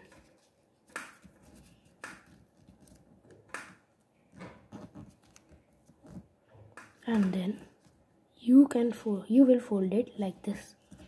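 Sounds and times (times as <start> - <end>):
paper being folded and creased: 0.0 - 6.3.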